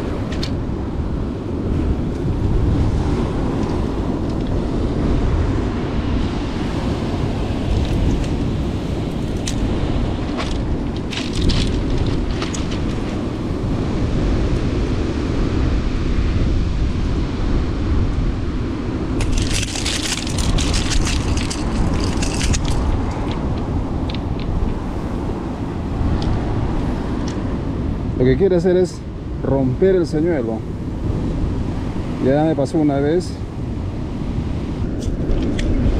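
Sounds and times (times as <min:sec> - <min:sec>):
surf rumble: 0:00.0 - 0:35.9
wind on microphone: 0:00.0 - 0:35.9
pebbles crunching and clattering: 0:10.4 - 0:13.2, 0:19.2 - 0:24.2.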